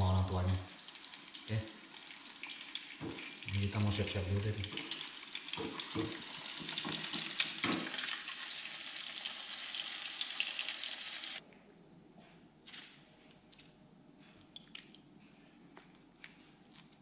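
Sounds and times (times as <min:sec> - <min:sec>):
eggs sizzling in hot oil: 0:00.0 - 0:11.4.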